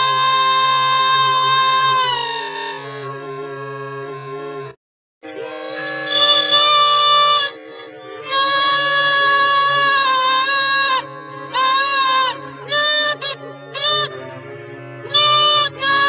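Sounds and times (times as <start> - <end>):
nasal honking notes: 0.0 - 16.0
steady low drone: 7.3 - 16.0.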